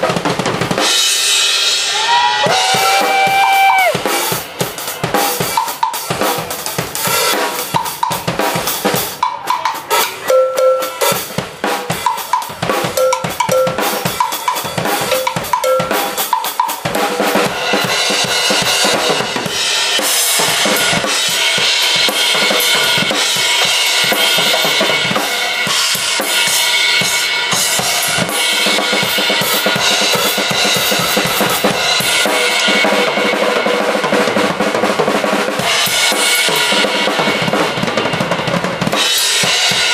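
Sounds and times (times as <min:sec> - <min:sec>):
drum kit solo: 0:00.0 - 0:39.9
washing cymbals: 0:03.8 - 0:34.6, 0:35.2 - 0:39.9.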